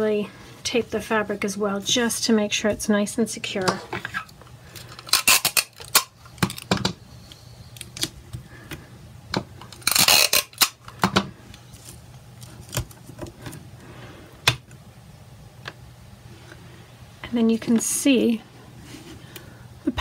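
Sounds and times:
sticky tape pulled and torn: 0:04.8 - 0:06.7, 0:09.6 - 0:10.8.

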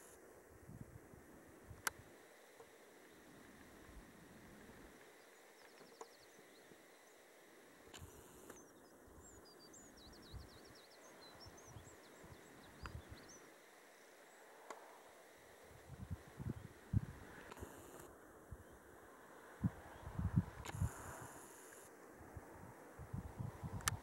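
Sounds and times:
songbird trills: 0:05.0 - 0:14.8
faint high bird chirps: 0:05.1 - 0:07.3, 0:08.0 - 0:14.5.

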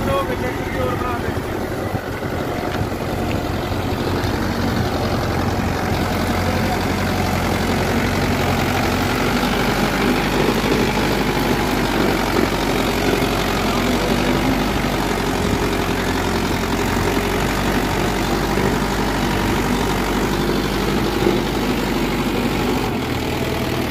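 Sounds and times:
tractor diesel engine running: 0:00.0 - 0:23.9.

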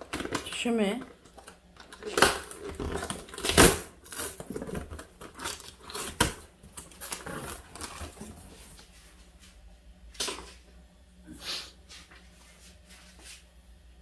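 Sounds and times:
packing tape ripping off cardboard: 0:01.4 - 0:08.2.

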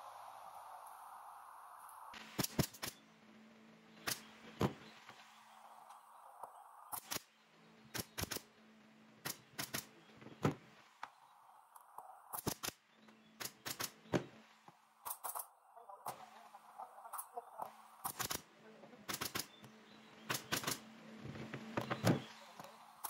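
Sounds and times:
pneumatic nail gun firing: 0:02.2 - 0:03.0, 0:04.0 - 0:04.3, 0:06.9 - 0:07.3, 0:07.9 - 0:08.5, 0:09.2 - 0:09.9, 0:12.3 - 0:12.8, 0:13.4 - 0:14.2, 0:18.0 - 0:18.4, 0:19.1 - 0:19.5, 0:20.3 - 0:20.9.

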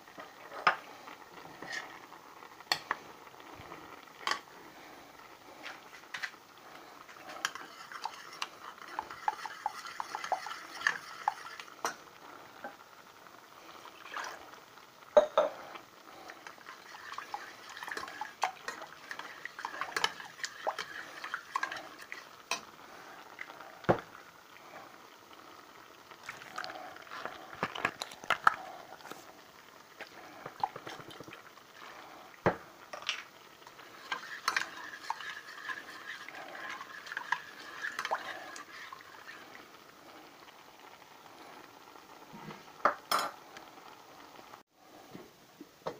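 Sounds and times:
utensil scraping metal saucepan: 0:07.2 - 0:11.7, 0:16.7 - 0:22.6, 0:33.7 - 0:39.5.

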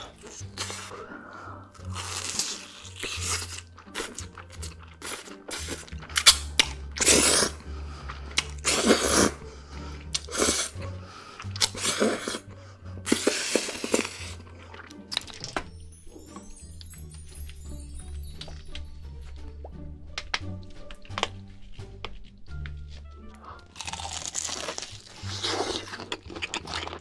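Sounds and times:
chewing: 0:00.0 - 0:15.6, 0:20.2 - 0:27.0
slurping cheese strands: 0:00.0 - 0:15.6, 0:20.8 - 0:27.0
background music: 0:00.0 - 0:27.0
crunchy bites: 0:01.8 - 0:09.4, 0:23.2 - 0:27.0.

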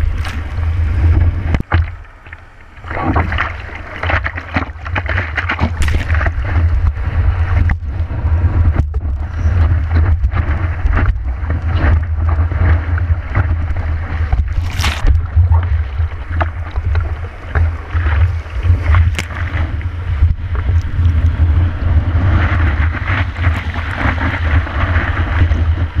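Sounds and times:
low rumble of wind and water: 0:00.0 - 0:26.0
sea water splashing over surfboard: 0:00.0 - 0:26.0.

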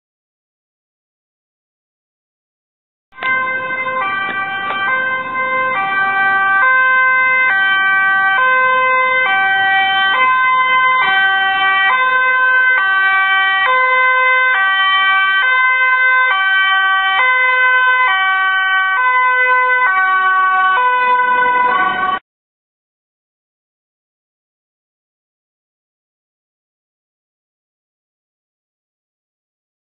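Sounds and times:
ambulance two-tone siren: 0:03.1 - 0:22.2.

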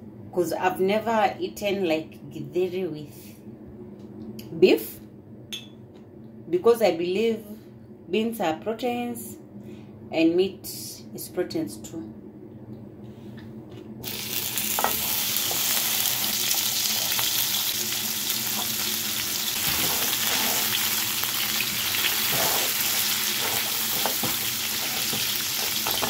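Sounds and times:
meat sizzling in oil: 0:14.0 - 0:26.0
spatula tapping and scraping pan: 0:22.3 - 0:26.0.

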